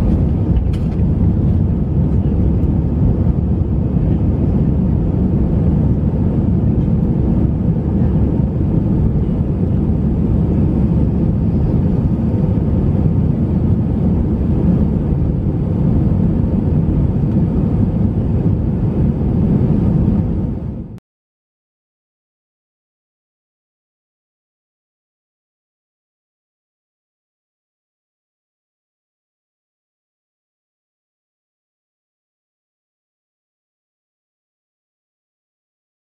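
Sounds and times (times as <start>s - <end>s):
jet engines rumbling in cabin: 0.0s - 21.0s
rushing air: 0.0s - 21.0s.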